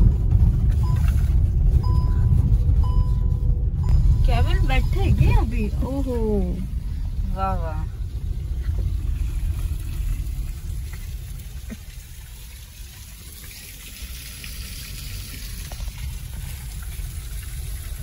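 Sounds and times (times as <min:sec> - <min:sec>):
car driving low rumble: 0:00.0 - 0:18.0.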